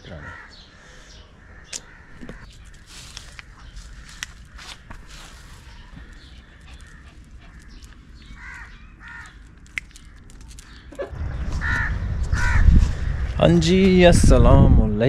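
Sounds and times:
bird harsh calls: 0.0s - 13.4s
low rumble: 11.1s - 15.0s.

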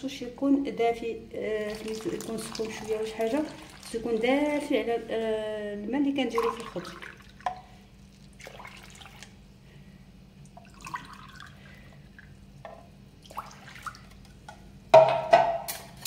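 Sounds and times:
water drips and splashes: 1.6s - 4.7s, 6.3s - 9.4s, 10.4s - 12.4s, 13.2s - 14.3s
water pouring into semolina: 1.6s - 4.7s, 6.2s - 9.4s, 10.4s - 12.4s, 13.2s - 14.2s
water pouring into a glass: 1.7s - 4.2s, 6.3s - 9.4s, 10.5s - 12.4s, 13.2s - 14.1s.

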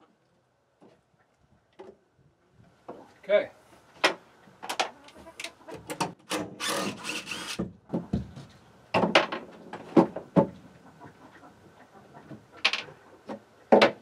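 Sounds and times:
wooden knocks and clatter: 7.5s - 10.6s, 12.3s - 14.0s.

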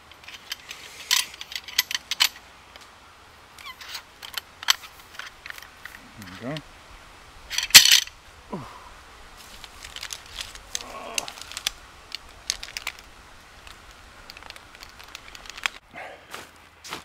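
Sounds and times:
camping cot frames clicking: 7.5s - 8.1s, 9.5s - 15.8s.

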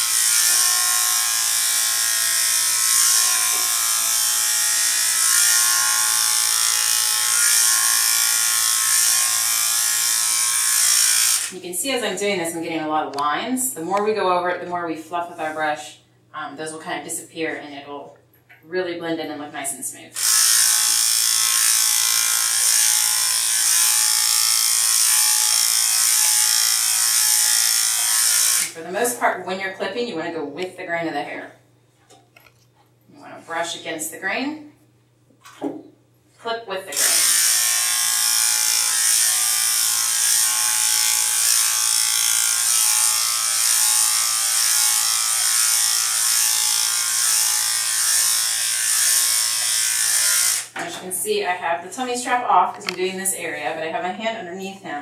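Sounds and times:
electric clipper buzzing: 0.0s - 11.6s, 20.2s - 29.2s, 36.9s - 50.9s.

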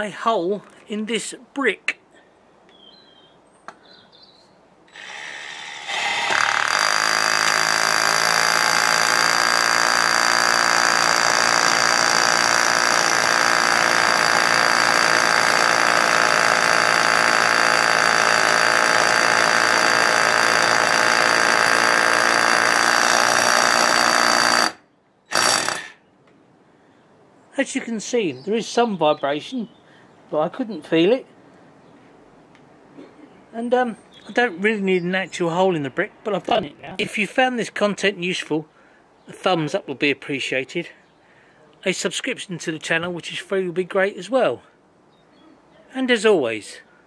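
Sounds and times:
hammer drill boring into brick: 4.9s - 26.0s.

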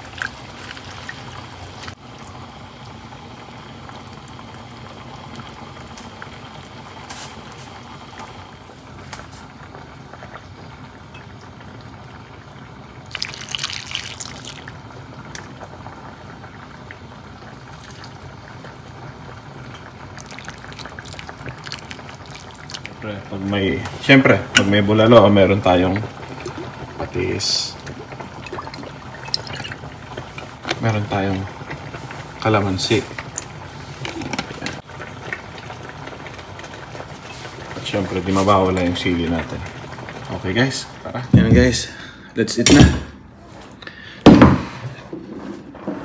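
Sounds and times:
soup bubbling in a pot: 0.0s - 41.8s
liquid splashing: 13.0s - 14.8s, 20.1s - 23.0s, 26.2s - 30.4s.

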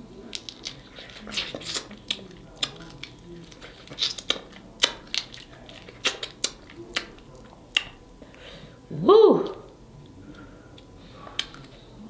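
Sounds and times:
crab shells cracking: 0.2s - 8.2s.

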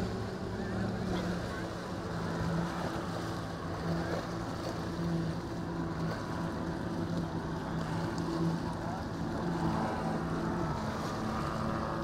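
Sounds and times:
motorboat engine droning: 0.0s - 12.0s
rushing water: 0.0s - 12.0s.

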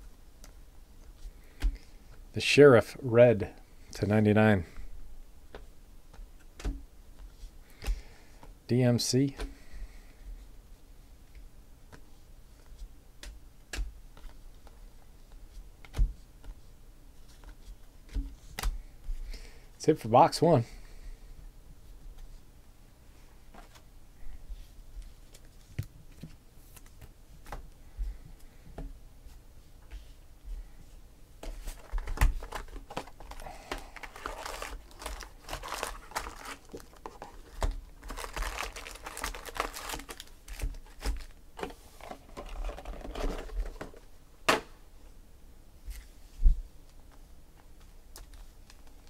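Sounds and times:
foil packs crinkling: 31.7s - 41.4s
packs tapping on table: 31.8s - 41.7s.

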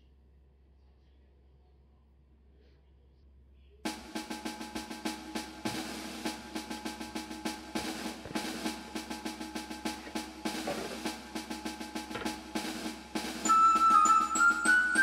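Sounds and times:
fast snare drum pattern: 3.9s - 15.0s
held music notes: 3.9s - 15.0s.

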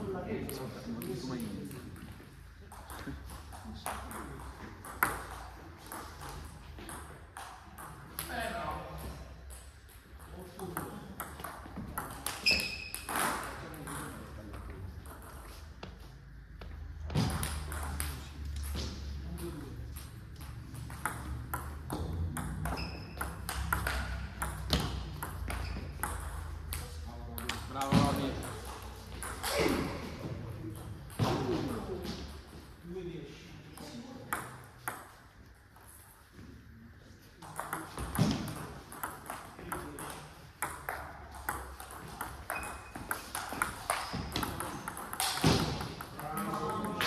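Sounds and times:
ping pong ball clicking: 19.4s - 27.7s, 37.4s - 47.0s
table tennis ball clicking: 20.0s - 27.6s.

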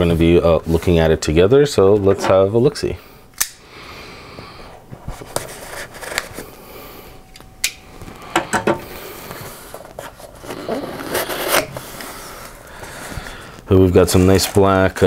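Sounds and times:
knife slitting packing tape: 10.6s - 11.8s.

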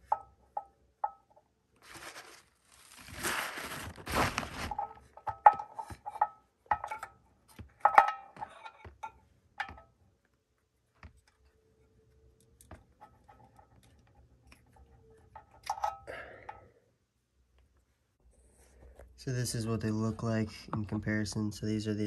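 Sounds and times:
metallic clinks and taps: 0.0s - 1.4s, 5.2s - 10.0s.

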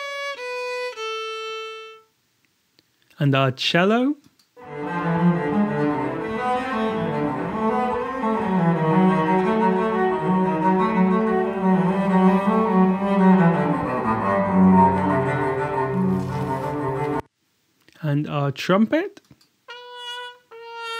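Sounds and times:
cello slow bowed melody: 4.6s - 17.3s.

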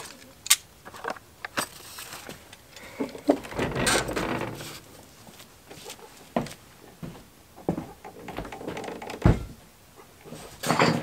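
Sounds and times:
tools handled and rustling: 0.0s - 6.6s, 10.3s - 11.0s
footsteps: 1.9s - 9.6s.

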